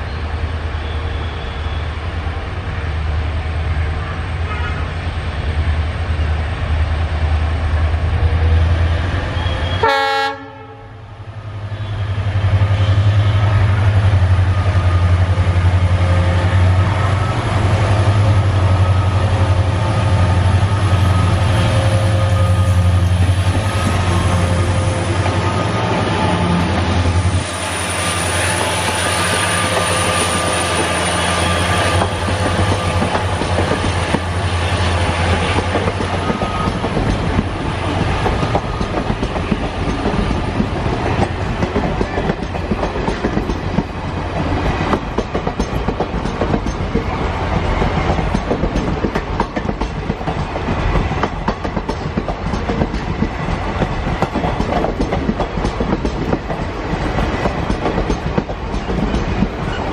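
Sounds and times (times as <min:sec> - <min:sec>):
diesel locomotive engine drone: 0:00.0 - 0:59.9
train wheels clickety-clack: 0:12.4 - 0:59.9.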